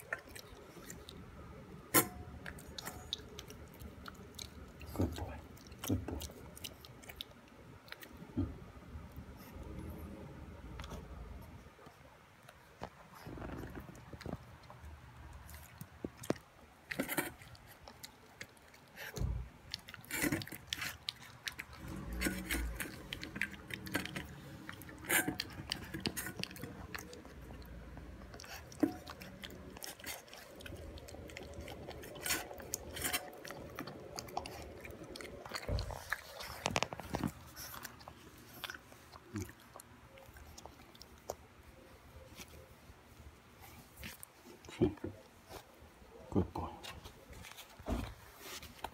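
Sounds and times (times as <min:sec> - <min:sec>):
puppy chewing food from metal bowl: 0:13.2 - 0:41.7.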